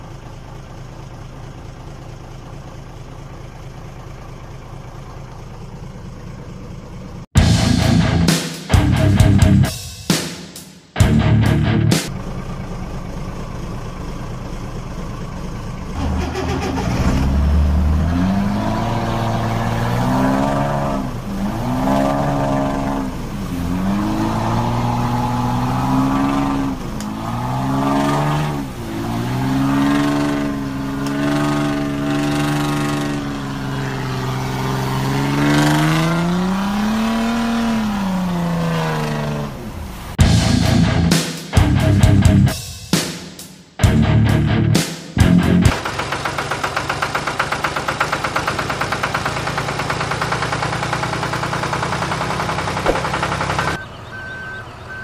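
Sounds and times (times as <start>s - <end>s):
low engine rumble: 0.0s - 9.8s, 11.0s - 18.1s, 39.4s - 42.6s
truck engine revving: 15.7s - 42.6s, 43.8s - 55.0s.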